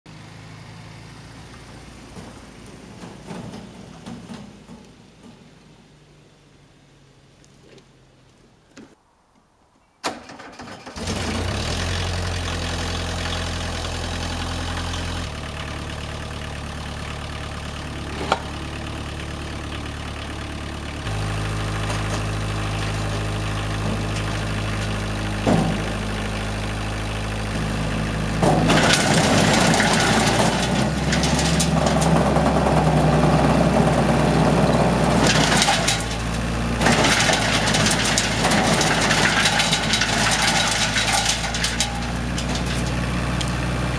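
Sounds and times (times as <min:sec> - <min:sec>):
diesel engine running: 0:00.1 - 0:08.2, 0:11.0 - 0:43.9
rushing of spinning chipper: 0:27.4 - 0:43.9.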